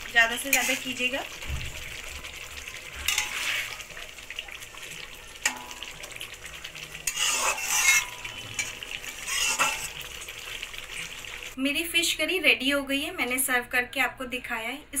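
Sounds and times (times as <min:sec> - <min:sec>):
gravy simmering sizzle: 0:00.0 - 0:11.8
metal spatula scraping a pan: 0:00.2 - 0:01.2, 0:02.2 - 0:04.2, 0:05.4 - 0:10.2.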